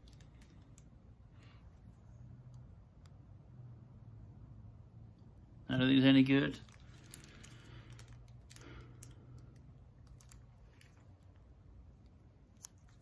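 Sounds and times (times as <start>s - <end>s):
cellophane wrappers crinkling: 0.0s - 1.0s, 6.5s - 13.0s.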